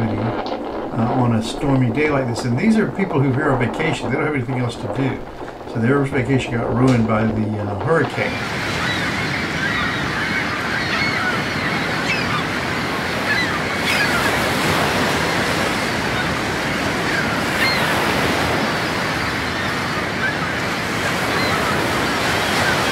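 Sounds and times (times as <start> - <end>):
breaking waves: 0.0 - 22.9
faint bird calls: 8.0 - 14.7, 17.0 - 22.9.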